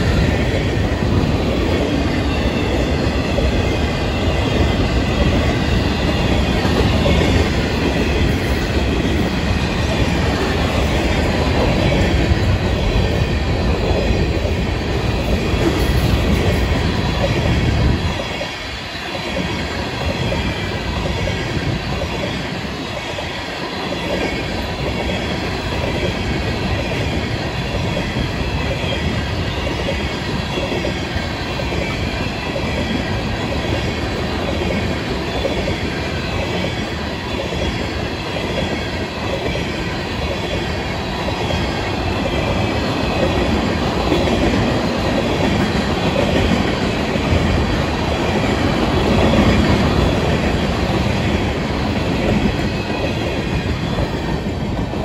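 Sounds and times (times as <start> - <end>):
train wheels rumbling and clattering: 0.0 - 55.0.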